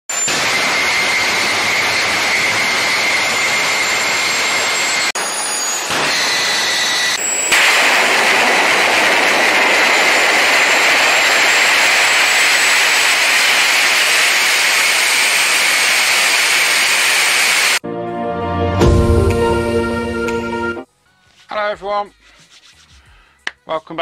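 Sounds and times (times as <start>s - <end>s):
high engine whine: 0.1s - 17.8s
jet engine roaring: 0.2s - 17.8s.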